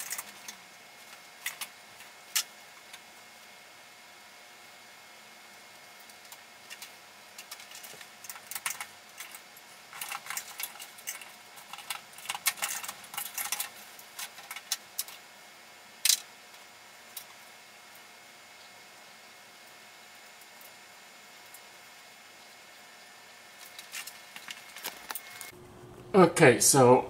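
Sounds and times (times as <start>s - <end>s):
small parts clicking and rattling: 0.0s - 3.0s, 6.0s - 15.2s, 16.0s - 16.3s, 23.6s - 25.5s.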